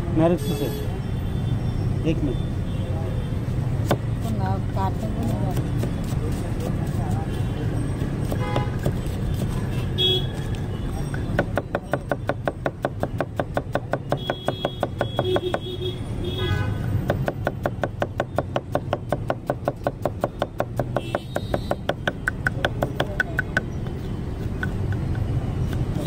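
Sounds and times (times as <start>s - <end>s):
knife chopping on wooden block: 11.3s - 15.6s, 17.0s - 26.0s.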